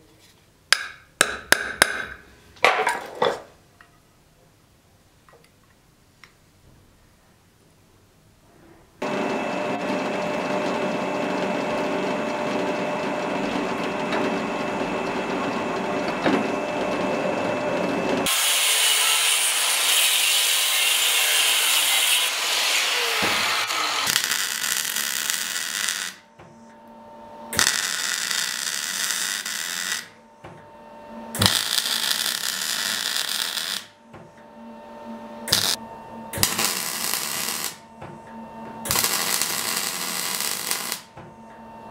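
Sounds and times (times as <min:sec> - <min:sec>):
drill press whining: 0:09.0 - 0:19.6, 0:22.0 - 0:41.9
mig welding bursts: 0:18.2 - 0:26.2, 0:27.6 - 0:30.2, 0:31.4 - 0:34.0, 0:35.5 - 0:35.8, 0:36.4 - 0:37.8, 0:38.9 - 0:41.1.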